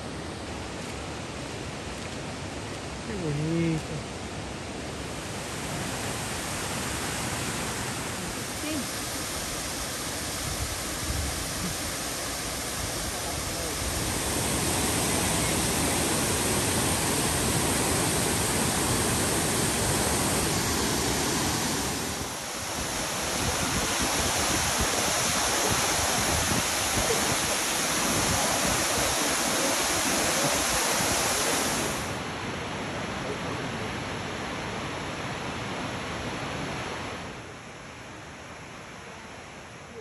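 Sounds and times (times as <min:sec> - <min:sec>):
waterfall pouring into pool: 0:11.4 - 0:32.1.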